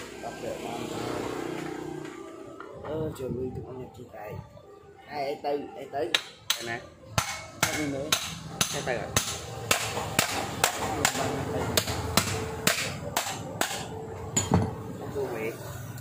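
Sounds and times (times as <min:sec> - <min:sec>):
sharp evenly spaced knocks: 0:06.1 - 0:14.0.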